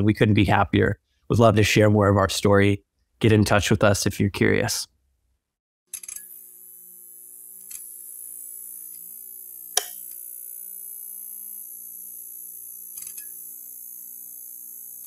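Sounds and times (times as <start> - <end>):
sharp electrical clicks: 12.8 - 13.4.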